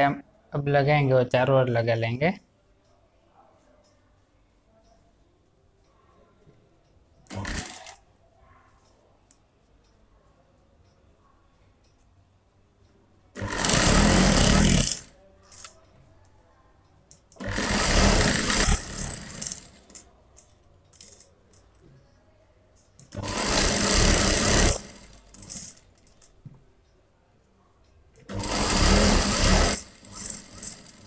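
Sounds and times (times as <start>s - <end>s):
sewing machine stitching: 7.3s - 8.0s, 13.4s - 15.7s, 17.3s - 20.0s, 23.1s - 25.9s, 28.2s - 31.0s.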